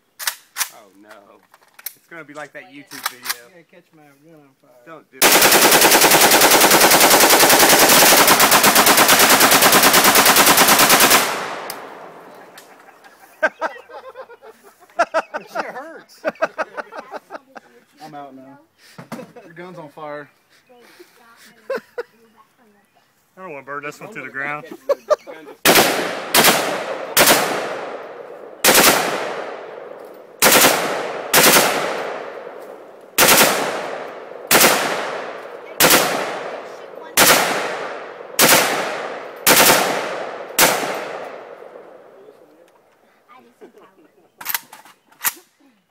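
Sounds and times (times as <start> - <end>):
rifle shots echoing: 5.2 - 12.7, 25.6 - 42.3.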